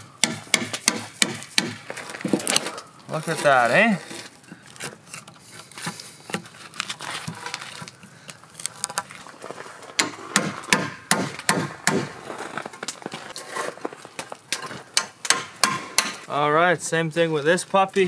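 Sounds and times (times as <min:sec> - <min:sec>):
hammer striking chisel: 0:00.2 - 0:01.8, 0:10.0 - 0:12.1, 0:15.0 - 0:16.3
chisel splitting wood: 0:00.2 - 0:06.5, 0:10.0 - 0:12.2, 0:14.5 - 0:16.2.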